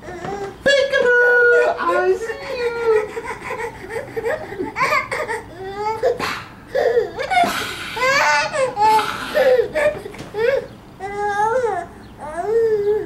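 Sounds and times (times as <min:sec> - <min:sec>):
baby laughing in high squeals: 0:01.5 - 0:10.7
baby gasping in-breaths: 0:06.2 - 0:09.8.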